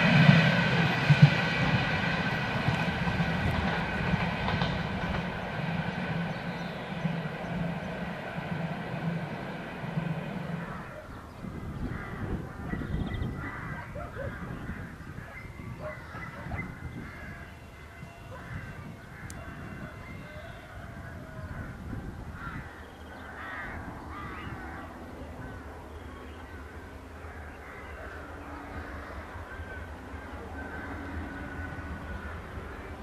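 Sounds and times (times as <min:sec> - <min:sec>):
birds chirping: 0:03.6 - 0:20.8.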